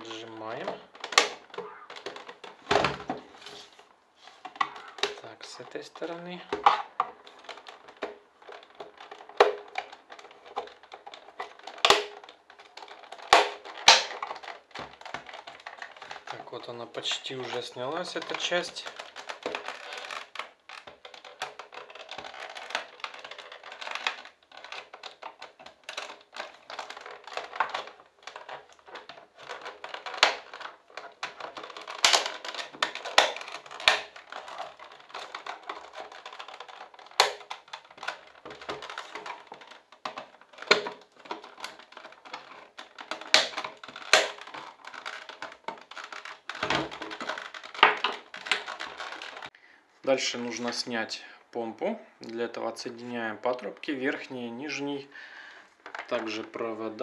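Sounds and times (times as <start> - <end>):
plastic scraping and creaking: 0.0 - 57.0
plastic latches snapping: 0.5 - 3.3, 4.4 - 5.3, 6.5 - 16.4, 17.5 - 49.5.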